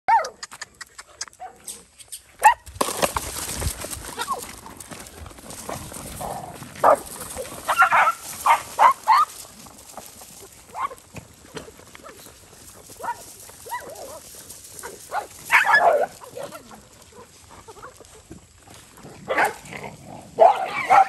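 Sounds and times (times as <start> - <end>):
dogs yelping and snarling: 6.2 - 9.4, 13.0 - 18.3, 19.1 - 21.0.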